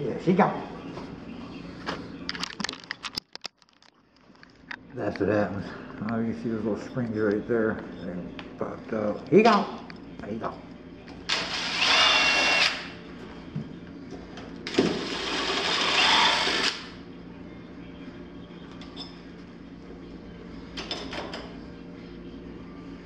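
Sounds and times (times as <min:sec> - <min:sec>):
cordless drill driving screws: 0:11.3 - 0:12.9, 0:15.0 - 0:16.8.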